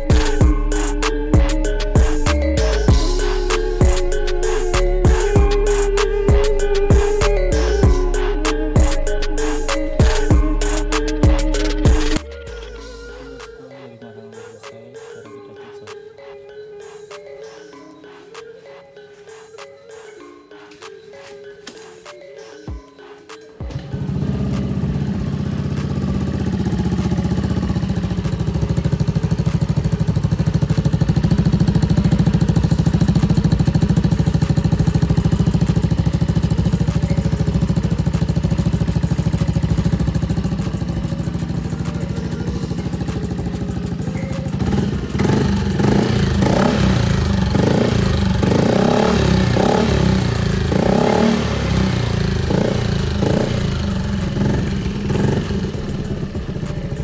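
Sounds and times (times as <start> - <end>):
scooter engine idling: 0.0 - 13.5, 23.6 - 57.0
engine throttle blips: 23.6 - 57.0.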